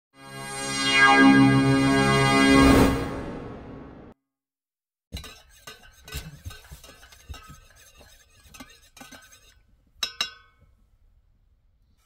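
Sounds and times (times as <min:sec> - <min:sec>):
spoon stirring in metal mug: 0:05.1 - 0:10.6.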